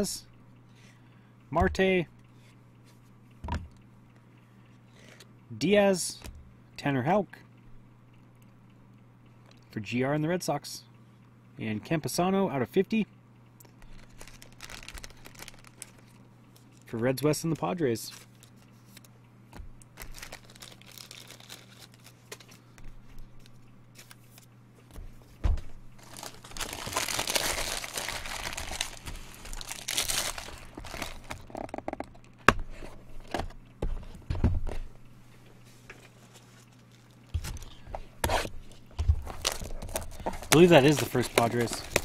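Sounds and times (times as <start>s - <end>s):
plastic wrapping crinkling and tearing: 13.6s - 16.9s, 19.9s - 22.6s, 26.0s - 32.0s, 36.2s - 37.8s, 39.2s - 42.0s.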